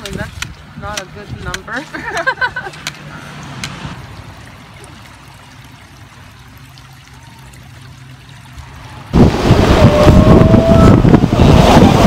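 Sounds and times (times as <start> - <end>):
stream trickling over stones: 0.0 - 9.2.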